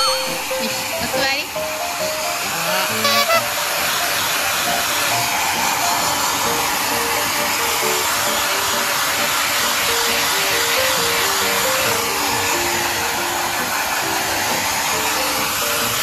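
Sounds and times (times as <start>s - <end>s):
simple background music melody: 0.0s - 9.2s
brief pitched sound: 3.0s - 3.5s
hair dryer blowing: 3.1s - 16.0s.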